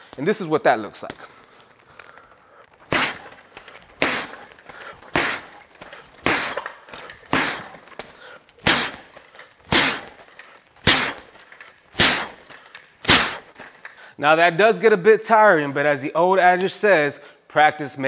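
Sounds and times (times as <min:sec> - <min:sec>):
boxing gloves punching a bag: 0:02.7 - 0:13.6.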